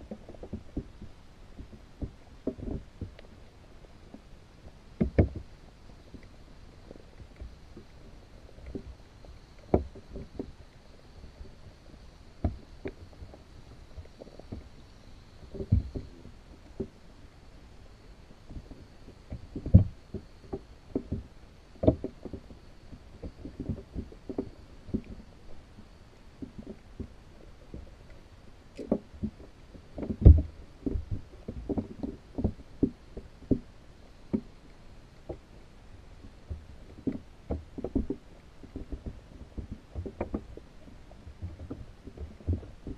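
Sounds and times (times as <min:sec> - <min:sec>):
muffled underwater knocks: 0:05.0 - 0:05.5, 0:09.7 - 0:10.5, 0:15.5 - 0:17.0, 0:30.0 - 0:33.7, 0:36.2 - 0:40.6.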